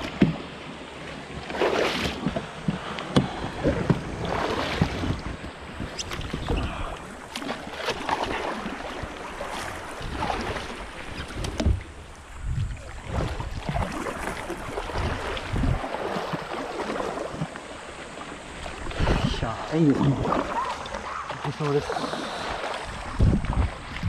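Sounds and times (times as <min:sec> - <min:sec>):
water splashing around kayak: 0:00.0 - 0:24.0
wind on microphone: 0:02.1 - 0:07.2, 0:09.0 - 0:16.0, 0:18.4 - 0:21.2, 0:21.9 - 0:24.0.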